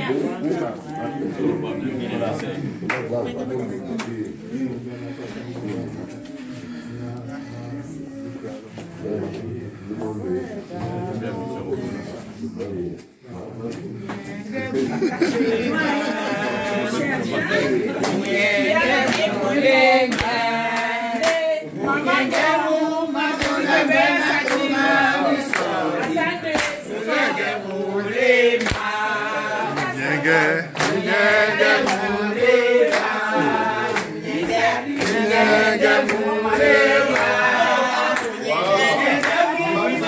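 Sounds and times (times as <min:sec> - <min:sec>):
group singing unaccompanied: 0:00.0 - 0:40.0
hand claps: 0:19.1 - 0:19.3, 0:20.1 - 0:21.5, 0:23.3 - 0:23.6, 0:25.5 - 0:26.8, 0:28.6 - 0:28.9, 0:30.7 - 0:31.1, 0:33.9 - 0:35.2.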